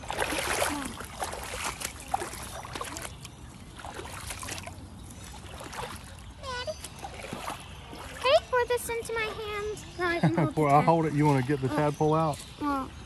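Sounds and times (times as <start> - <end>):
boots splashing through water: 0.0 - 8.5, 10.6 - 12.4.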